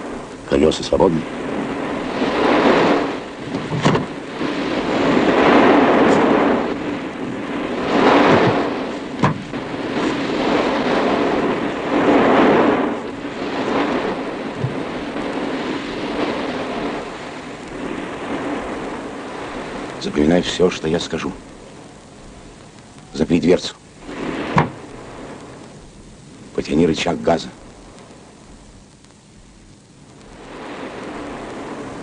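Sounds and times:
sea surf breaking: 0.0 - 22.1, 23.2 - 25.8, 30.2 - 32.0
short knocks: 9.2 - 9.5.

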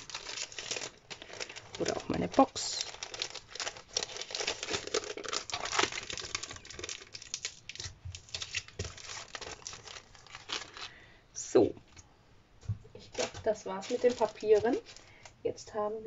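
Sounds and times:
plastic sleeve crinkling: 0.0 - 11.1, 12.9 - 15.4
paper sheets rustling: 13.0 - 15.2.

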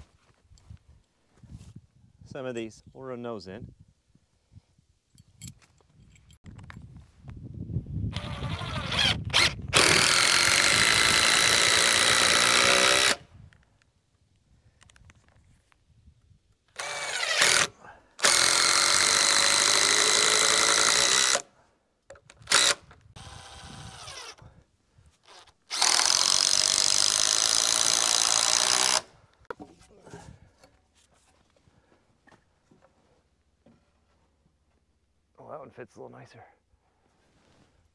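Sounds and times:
power drill driving screws: 8.1 - 13.2, 16.8 - 21.4, 22.4 - 24.4, 25.2 - 29.1.

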